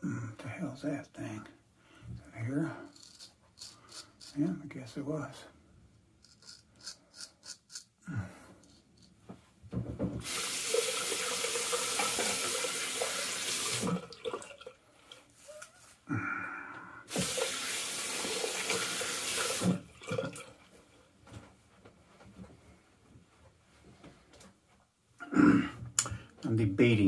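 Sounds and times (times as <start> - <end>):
water splashing: 10.2 - 15.2
tap running into sink: 17.1 - 17.6, 18.2 - 19.8.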